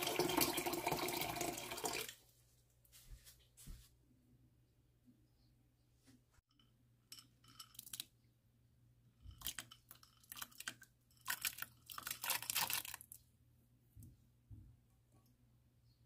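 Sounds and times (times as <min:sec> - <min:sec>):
dried shrimp rattling: 0:09.3 - 0:13.2.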